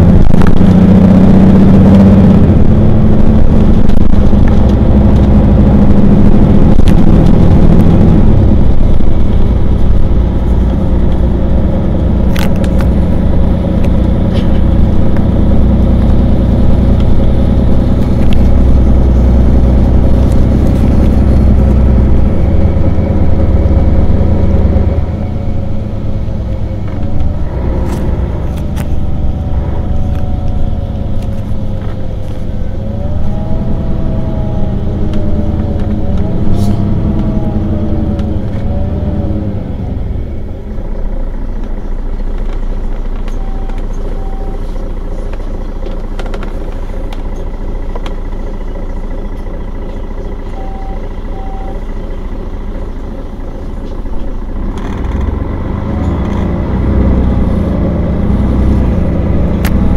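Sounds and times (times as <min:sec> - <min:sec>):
whine rising and falling: 0:00.0 - 0:40.5
bus engine idling: 0:00.0 - 0:59.9.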